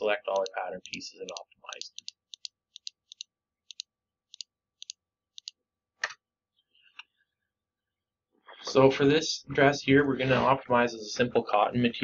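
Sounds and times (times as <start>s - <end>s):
computer mouse clicking: 0.3s - 6.2s.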